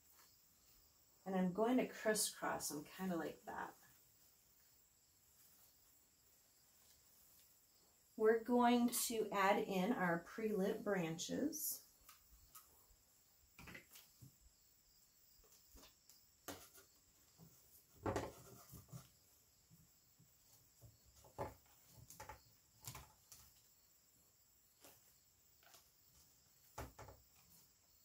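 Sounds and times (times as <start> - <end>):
rustling and clicking stems: 24.8 - 27.8.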